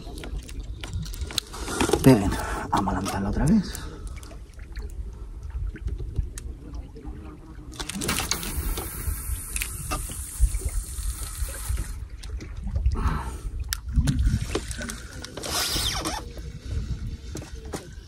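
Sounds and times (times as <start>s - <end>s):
trickling water hiss: 8.1s - 12.3s
wind buffeting microphone: 8.6s - 18.0s.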